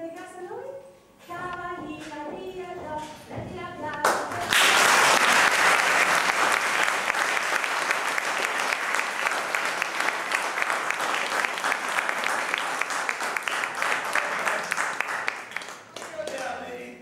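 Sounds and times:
audience applauding: 4.1 - 16.8.

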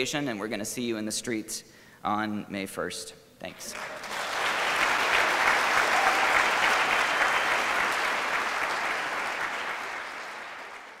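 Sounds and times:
crowd applauding: 3.6 - 11.0.

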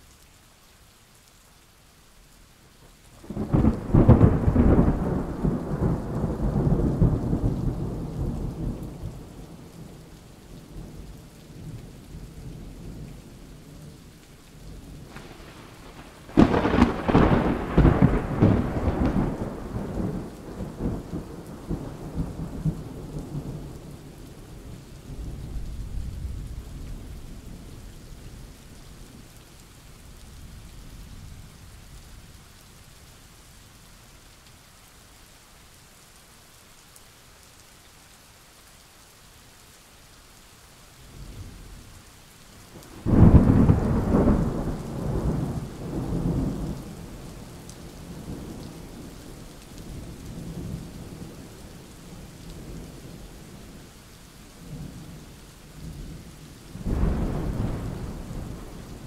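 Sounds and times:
heavy rain falling: 0.0 - 59.0
faint rumble of thunder: 3.2 - 14.0, 14.6 - 32.6, 42.6 - 54.0, 54.6 - 59.0
loud thunderclaps: 3.3 - 8.8, 15.0 - 23.5, 42.9 - 46.8, 56.8 - 59.0.

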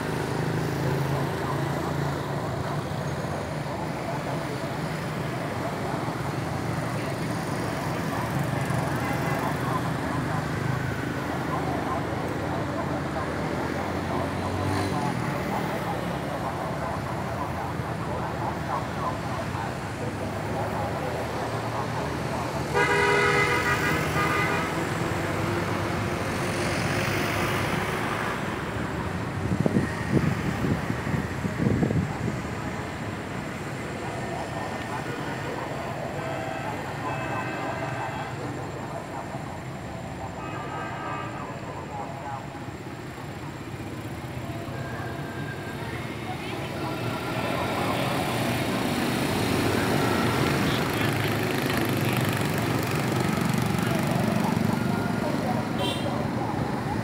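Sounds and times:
road traffic noise: 0.0 - 57.0
vehicle horn: 22.7 - 24.8, 36.2 - 38.4, 55.8 - 56.1.

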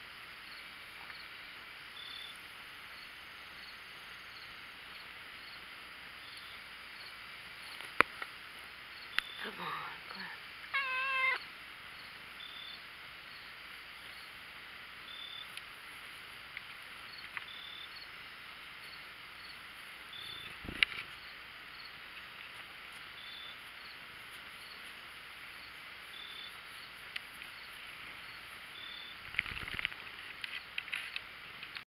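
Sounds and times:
crickets chirring: 0.0 - 31.3.

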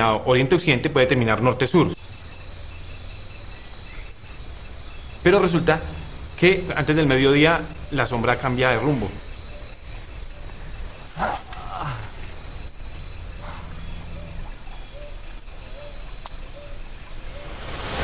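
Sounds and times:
low steady drone: 16.9 - 18.0.

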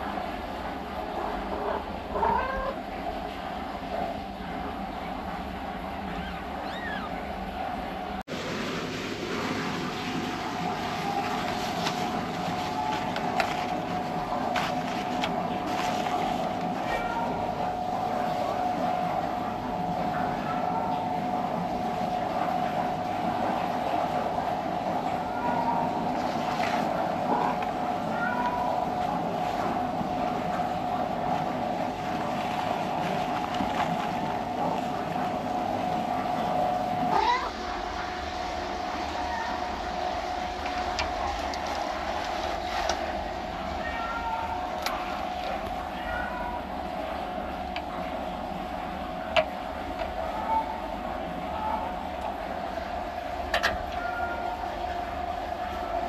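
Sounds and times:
faint hum: 0.0 - 56.0
cat meowing: 2.1 - 2.8, 6.1 - 7.2, 16.8 - 17.6, 27.3 - 28.8, 37.1 - 37.6, 43.8 - 45.2, 45.9 - 46.7, 53.9 - 54.6
fabric sheet crinkling: 11.2 - 16.6, 32.2 - 34.9.

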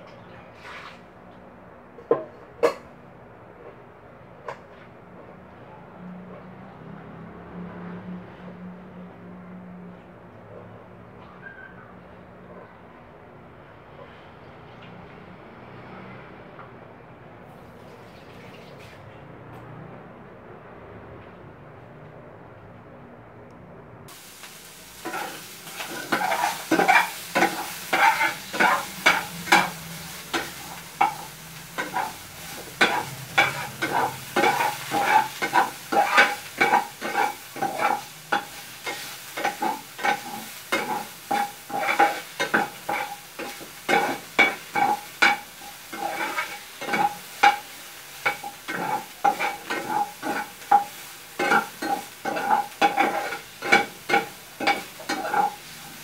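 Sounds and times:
pork fat sizzling in a pan: 24.1 - 56.0
metal spoon scraping a pan: 24.9 - 56.0.

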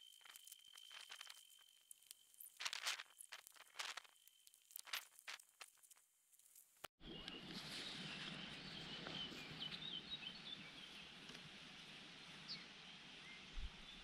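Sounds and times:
steady outdoor hiss: 0.0 - 14.0
faint birdsong chirps: 7.0 - 14.0.

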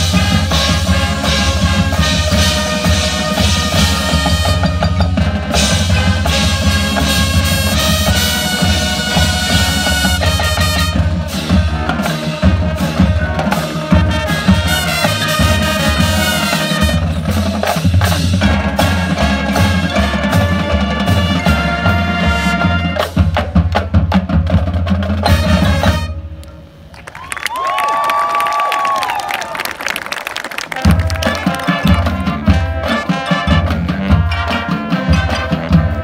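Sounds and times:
mallet percussion: 0.0 - 21.9
brass: 0.0 - 23.5, 25.0 - 26.5, 30.6 - 36.0
drumline: 0.0 - 36.0
marching band playing: 0.0 - 36.0.

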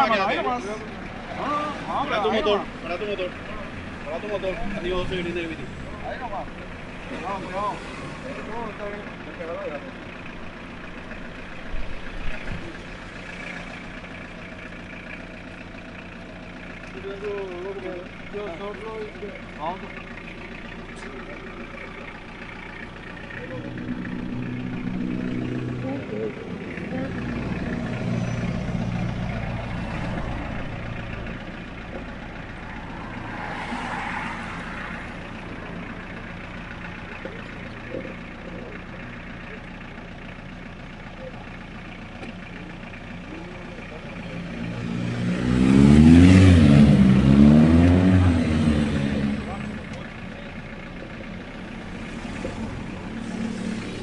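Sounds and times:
street traffic noise: 0.0 - 54.0
vehicle engine idling: 0.0 - 54.0
vehicle tyres hissing past: 32.7 - 35.3.

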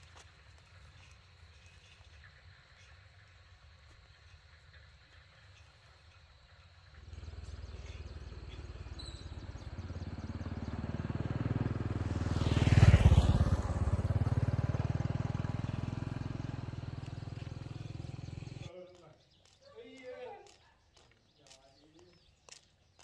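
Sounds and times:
small motorcycle engine running: 6.9 - 18.7.

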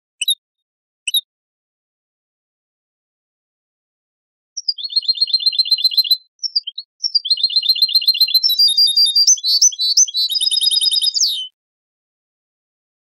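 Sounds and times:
goldfinch song trills: 4.6 - 11.5.

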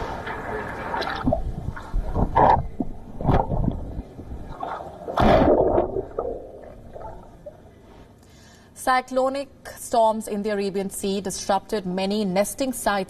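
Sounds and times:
seawater sloshing and gurgling: 0.0 - 8.0.

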